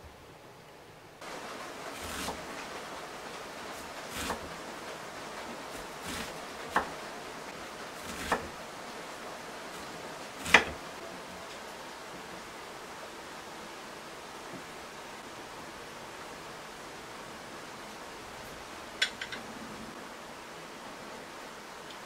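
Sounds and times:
heavy rain hiss: 0:00.0 - 0:22.0
knife chopping on wooden board: 0:08.0 - 0:08.5, 0:10.4 - 0:10.8.

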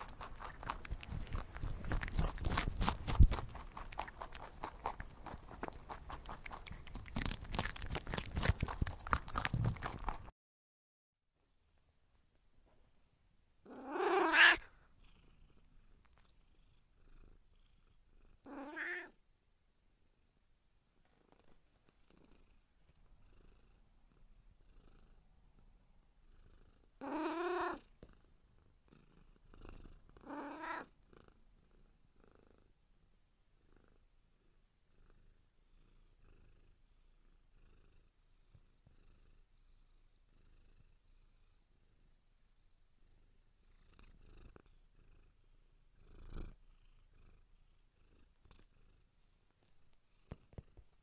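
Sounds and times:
cat purring: 0:00.0 - 0:10.3, 0:13.6 - 0:19.2, 0:21.0 - 0:51.0
cat meowing: 0:13.7 - 0:14.7, 0:18.5 - 0:19.2, 0:27.0 - 0:27.8, 0:30.3 - 0:30.9.

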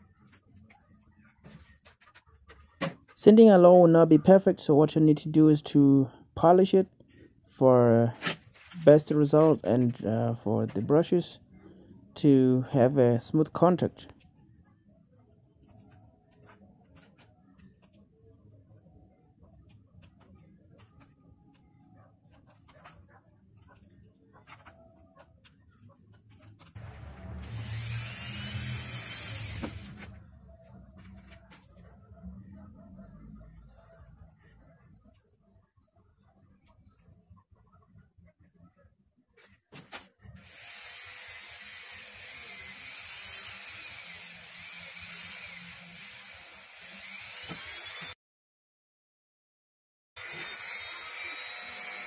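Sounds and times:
rotary tool high-pitched whine: 0:26.8 - 0:30.1, 0:40.4 - 0:48.2, 0:50.2 - 0:52.0
small electric drill running: 0:26.8 - 0:30.1, 0:40.4 - 0:48.2, 0:50.2 - 0:52.0.

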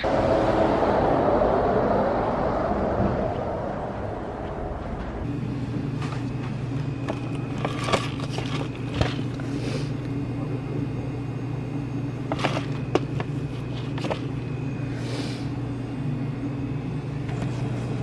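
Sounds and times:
steady low hum: 0:00.0 - 0:18.0
plastic-wrapped cups crinkling: 0:07.1 - 0:09.4.

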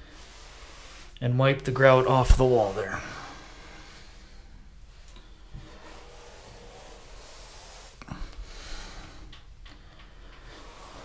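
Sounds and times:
sponge swishing on tile: 0:00.0 - 0:09.3, 0:10.4 - 0:11.0.

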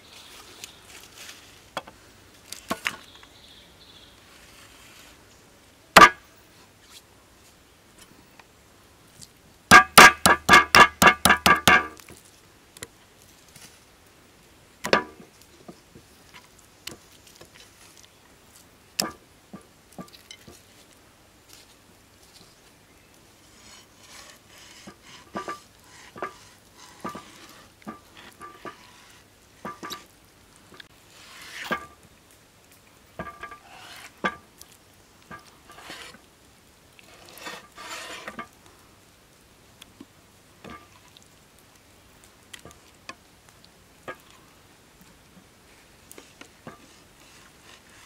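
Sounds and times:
knife scraping through meat: 0:35.7 - 0:36.2, 0:37.1 - 0:38.3.

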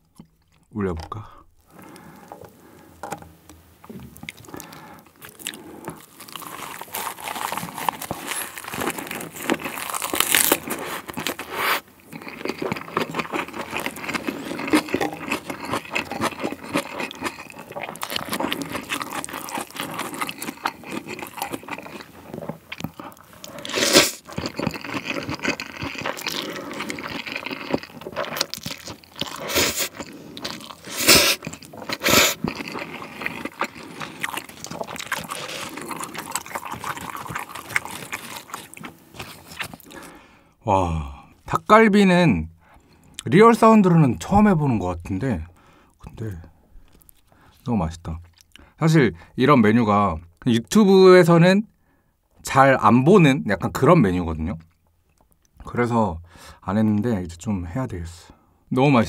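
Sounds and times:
wet chewing: 0:00.0 - 0:00.7, 0:01.6 - 0:40.2
man chewing crunchy food: 0:00.0 - 0:40.3, 0:46.7 - 0:48.8.

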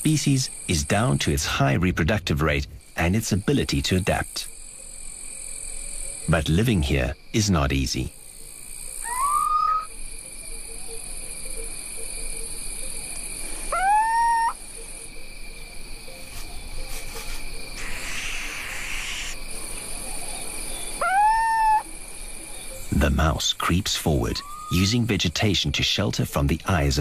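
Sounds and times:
insects chorus: 0:00.0 - 0:27.0
owl hooting: 0:09.0 - 0:10.0, 0:13.4 - 0:14.6, 0:17.0 - 0:23.0, 0:24.2 - 0:25.0.

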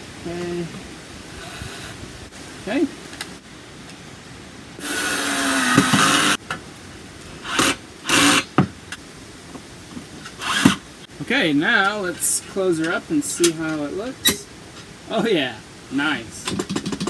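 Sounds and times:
cordless drill driving screws: 0:04.8 - 0:06.4, 0:07.4 - 0:08.5, 0:10.4 - 0:10.8.

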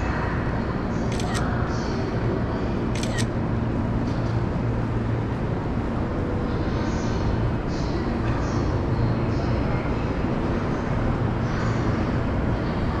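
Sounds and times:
sharp clicks: 0:01.1 - 0:01.5, 0:03.0 - 0:03.3.

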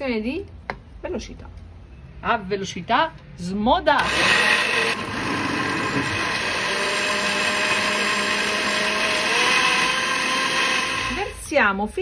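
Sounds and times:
blender motor whine: 0:04.0 - 0:11.5.

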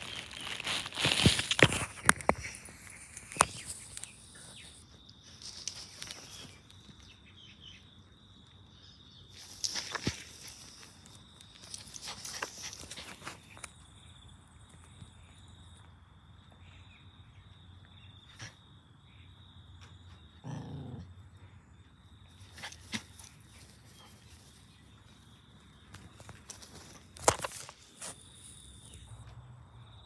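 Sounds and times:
puppy growling: 0:20.4 - 0:21.2.

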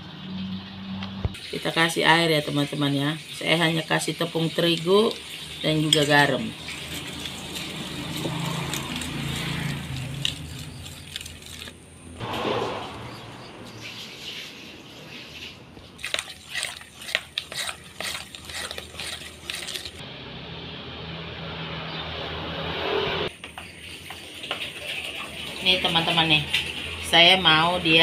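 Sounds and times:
batter squelching: 0:01.4 - 0:12.2, 0:13.1 - 0:20.0.

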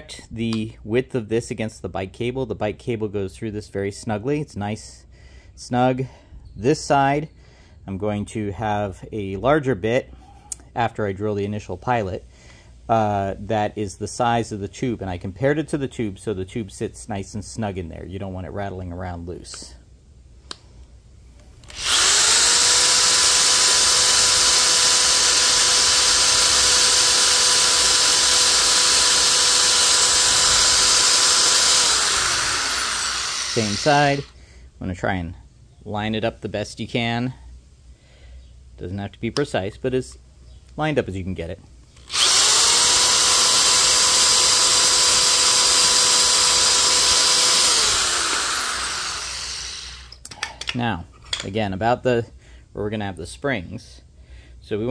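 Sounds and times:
electric drill boring into wood: 0:21.6 - 0:34.3, 0:42.0 - 0:50.2.

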